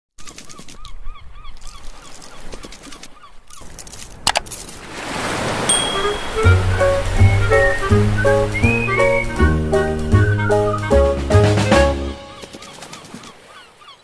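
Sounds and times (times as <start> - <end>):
music with a bass line: 8.7 - 12.1.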